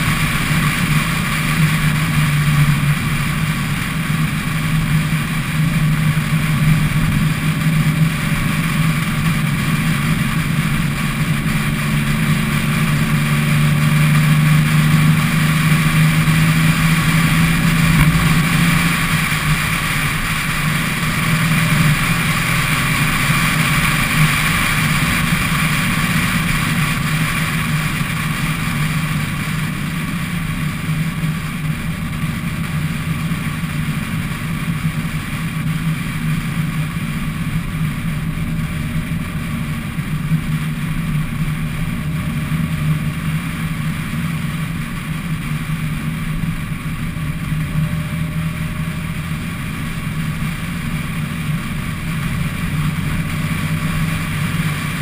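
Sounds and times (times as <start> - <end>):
wind noise: 0.0 - 33.7
car engine drone: 0.0 - 55.0
road noise: 0.0 - 55.0.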